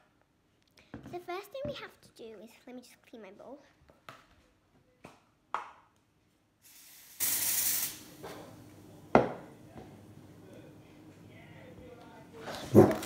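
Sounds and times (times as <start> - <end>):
short hiss: 6.6 - 8.4.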